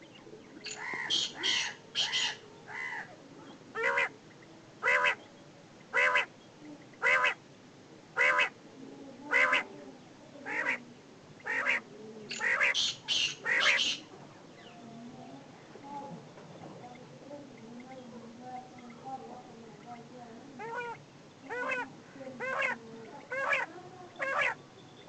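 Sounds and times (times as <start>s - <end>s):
quail calling: 0.0s - 4.1s, 4.8s - 5.3s, 5.9s - 6.3s, 7.0s - 7.4s, 8.2s - 8.6s, 9.3s - 9.7s, 10.4s - 10.8s, 11.4s - 14.1s, 20.6s - 24.6s.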